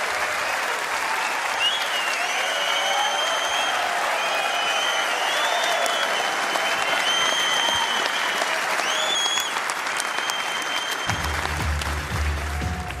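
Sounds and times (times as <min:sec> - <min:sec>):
crowd applauding: 0:00.0 - 0:13.0
high whistles: 0:01.5 - 0:11.2.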